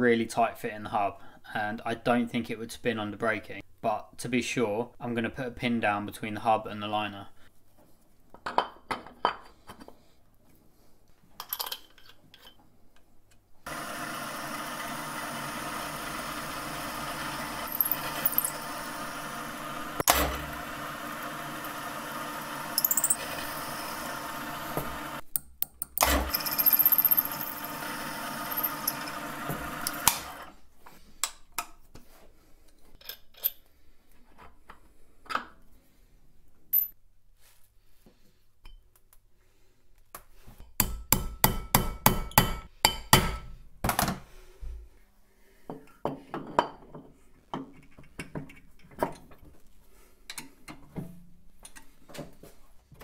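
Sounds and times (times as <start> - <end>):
milling machine drilling: 13.7 - 25.2, 26.0 - 30.5
metal clinks and knocks: 22.8 - 23.2.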